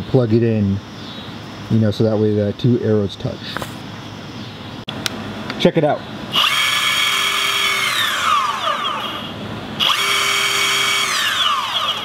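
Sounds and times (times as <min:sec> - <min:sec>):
electric motor high whine: 0:06.3 - 0:12.0.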